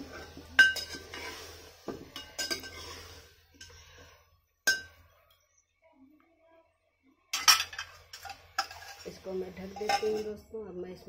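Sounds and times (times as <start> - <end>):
metal ladle clinking on pot: 0.6 - 1.4, 2.0 - 3.0, 4.7 - 5.0, 7.3 - 9.1, 9.7 - 10.3.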